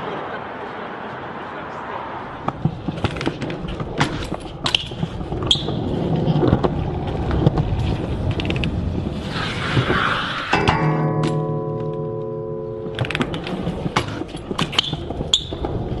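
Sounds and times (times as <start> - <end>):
bike tyres rolling on concrete: 0.0 - 16.0
bike clicks and knocks: 2.4 - 8.8, 10.5 - 16.0.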